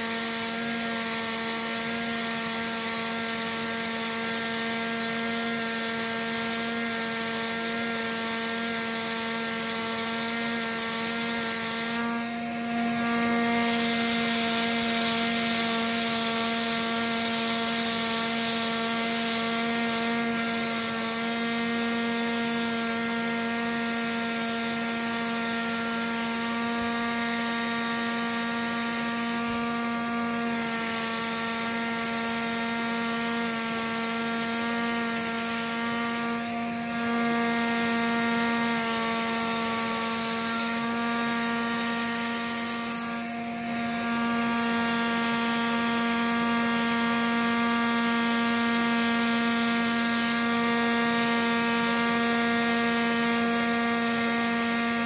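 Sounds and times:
pneumatic air scribe buzzing: 0:00.0 - 0:55.0.

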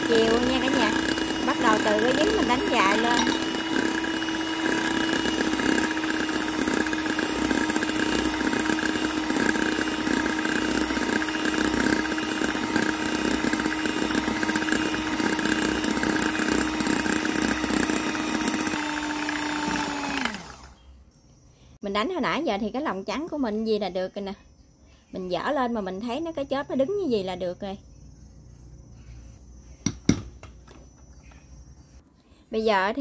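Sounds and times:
electric hand mixer whining: 0:00.0 - 0:20.8.

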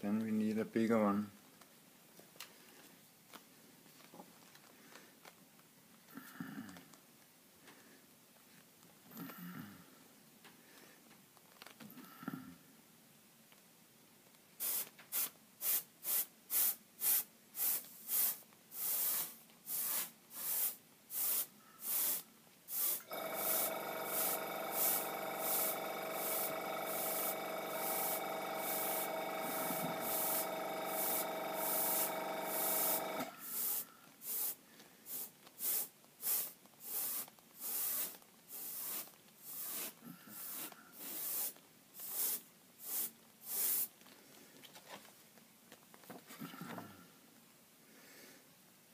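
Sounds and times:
airbrush hissing bursts: 0:14.6 - 0:43.9
machine hum with whine: 0:23.1 - 0:33.4.

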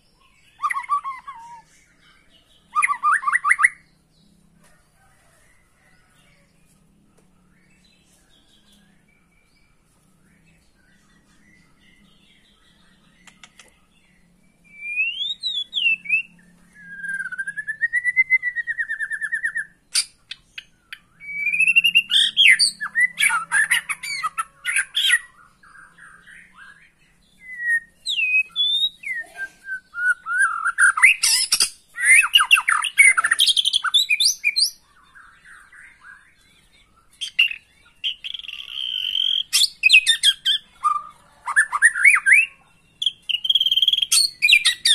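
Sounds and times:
songbird whistles and trills: 0:00.0 - 0:03.9, 0:14.6 - 0:44.9.

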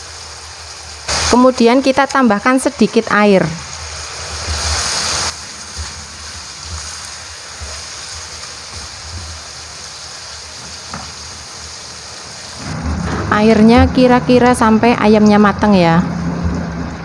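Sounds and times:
water hissing in hot wok: 0:00.0 - 0:17.0.

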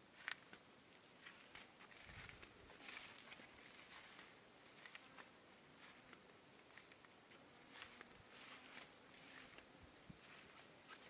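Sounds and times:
soft ticks and rustles: 0:00.1 - 0:11.0.

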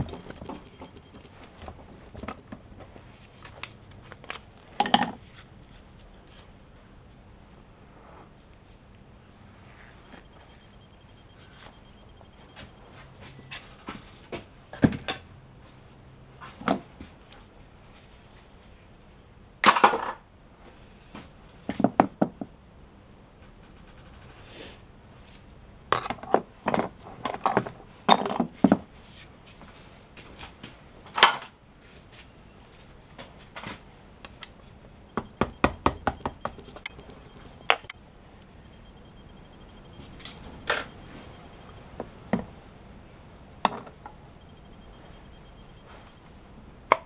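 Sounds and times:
hammer tapping on metal tool: 0:35.2 - 0:37.9.

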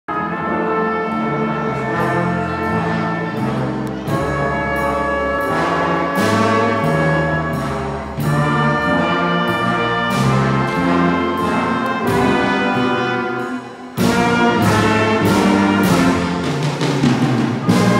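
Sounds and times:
brass section chords: 0:00.1 - 0:17.9
bass notes: 0:01.2 - 0:17.9
drum and cymbal hits: 0:02.6 - 0:17.9.

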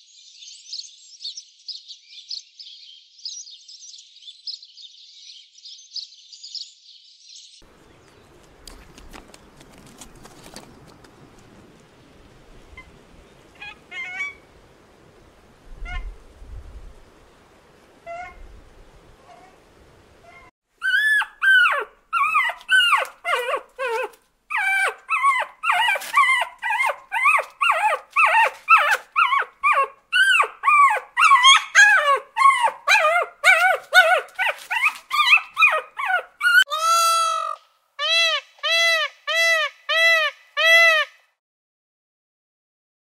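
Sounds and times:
peacock calling: 0:12.7 - 0:14.5, 0:20.2 - 0:41.2
small dog yipping and whimpering: 0:13.6 - 0:14.4, 0:15.8 - 0:16.1, 0:18.0 - 0:18.4, 0:20.2 - 0:41.0.

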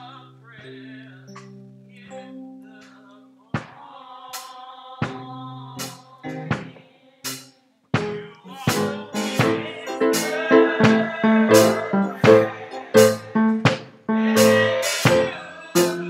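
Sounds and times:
keyboard chords: 0:06.2 - 0:06.8, 0:08.0 - 0:16.0
drum hits: 0:08.0 - 0:16.0
struck chords: 0:08.0 - 0:16.0.

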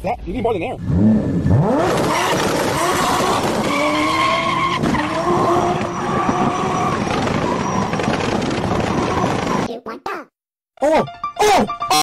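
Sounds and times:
squealing tone: 0:03.7 - 0:09.7.

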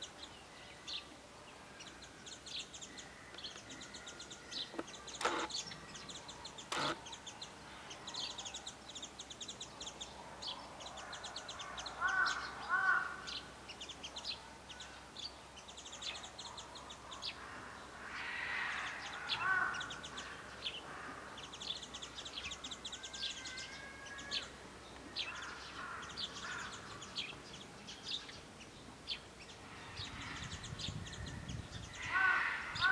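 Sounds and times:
small birds chirping: 0:00.0 - 0:32.9
crow cawing: 0:12.0 - 0:13.3, 0:17.4 - 0:21.2, 0:25.3 - 0:26.8, 0:32.0 - 0:32.9.

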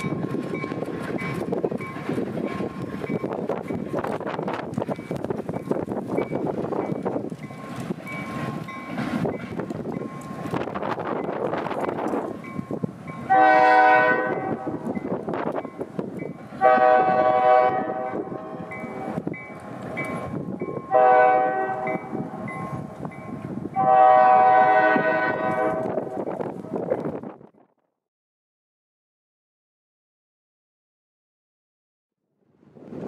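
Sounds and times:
train rumbling: 0:00.0 - 0:27.6, 0:32.5 - 0:33.0
distant locomotive air horn: 0:13.3 - 0:14.9, 0:16.6 - 0:19.2, 0:20.9 - 0:22.1, 0:23.8 - 0:26.2.

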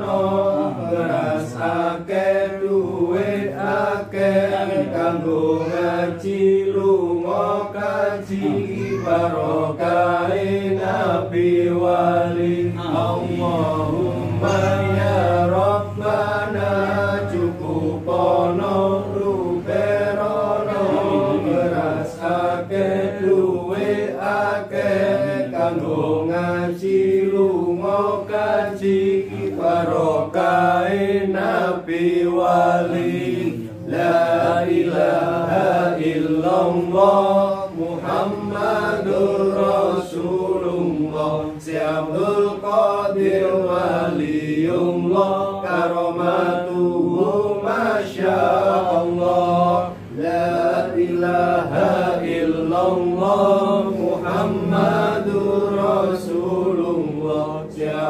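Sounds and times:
men chanting a prayer: 0:00.0 - 0:58.0
steady low drone: 0:10.1 - 0:26.6.

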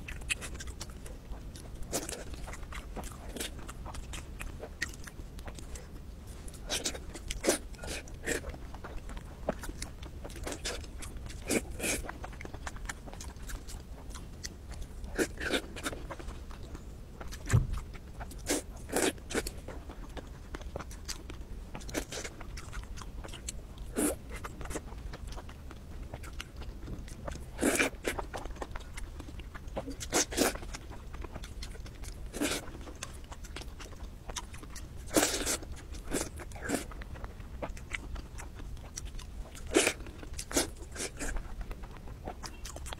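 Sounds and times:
crunchy chewing of fried food: 0:00.0 - 0:42.9
dull thump: 0:17.5 - 0:17.8.

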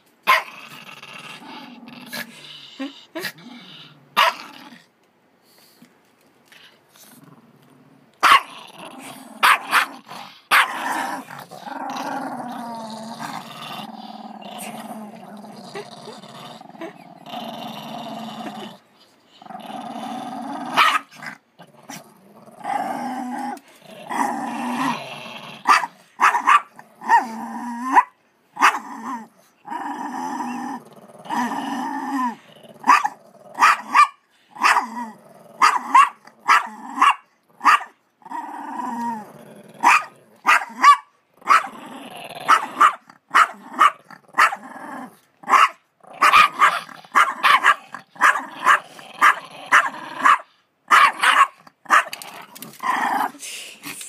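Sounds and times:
small dog growling: 0:00.5 - 0:04.9, 0:06.5 - 0:25.7, 0:28.7 - 0:33.6, 0:34.8 - 0:40.5, 0:41.4 - 0:50.4
small dog barking sharply: 0:39.9 - 0:41.7, 0:49.7 - 0:52.1.

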